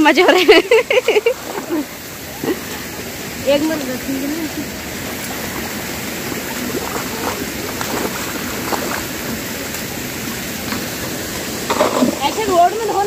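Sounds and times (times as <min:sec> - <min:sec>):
running water: 0:00.0 - 0:13.0
faint splashes in a bucket: 0:05.0 - 0:13.0.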